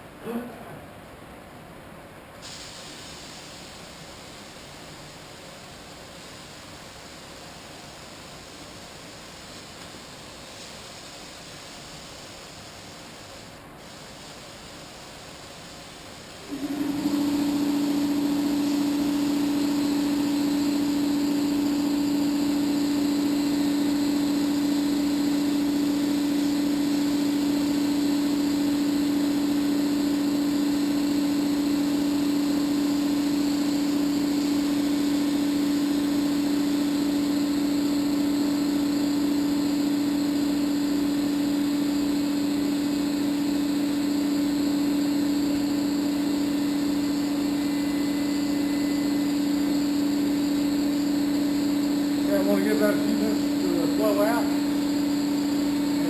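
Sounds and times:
spray gun hissing: 2.4s - 3.8s, 10.4s - 39.2s
paint-spray turbine humming: 16.0s - 56.0s.

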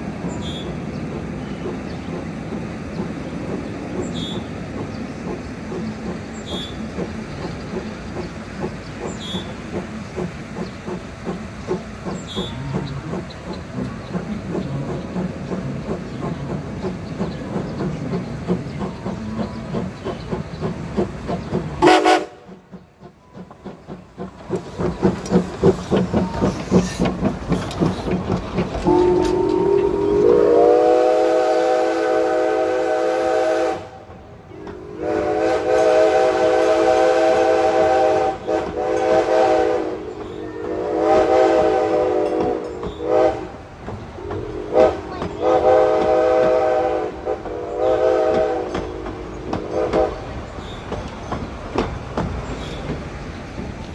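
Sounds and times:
steam locomotive chuffing: 0.0s - 53.9s
train cars clattering on rails: 0.0s - 53.9s
long steam whistle blasts: 21.8s - 22.4s, 28.9s - 34.0s, 34.8s - 40.0s, 40.6s - 43.5s, 44.6s - 49.0s.

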